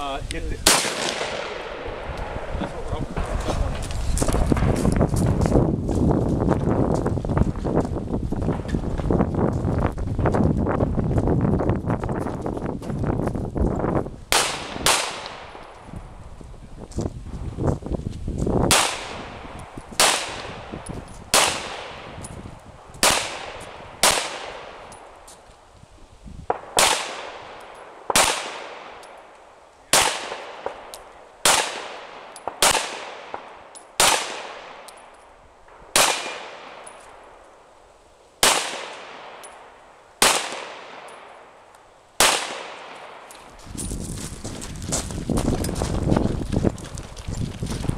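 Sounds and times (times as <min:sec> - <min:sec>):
gunshots with echo: 0:00.6 - 0:03.6, 0:14.3 - 0:15.8, 0:18.7 - 0:22.2, 0:23.0 - 0:24.9, 0:26.5 - 0:29.0, 0:29.9 - 0:34.9, 0:35.8 - 0:37.0, 0:38.4 - 0:41.5, 0:42.2 - 0:43.3.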